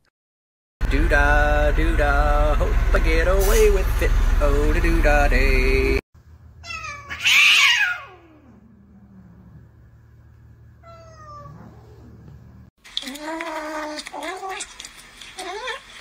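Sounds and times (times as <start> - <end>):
cat crying: 6.6 - 8.6, 10.8 - 11.9.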